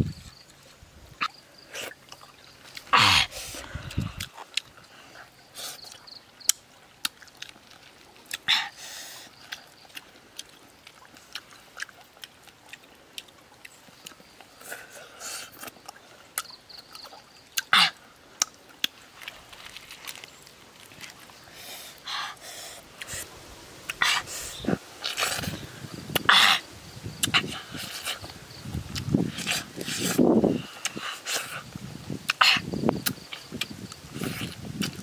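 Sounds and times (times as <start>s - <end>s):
mouth clicks: 2.8s - 4.7s, 23.0s - 26.6s, 27.2s - 30.2s.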